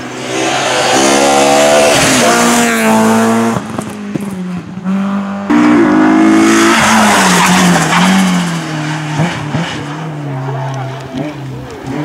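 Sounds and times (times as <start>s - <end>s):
rally car revving high: 0.0s - 12.0s
rally car engine with pops: 1.9s - 5.9s, 6.5s - 12.0s.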